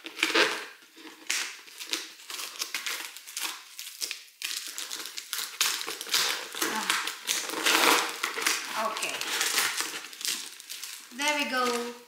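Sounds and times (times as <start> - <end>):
packing tape peeled off cardboard: 0.0 - 12.0.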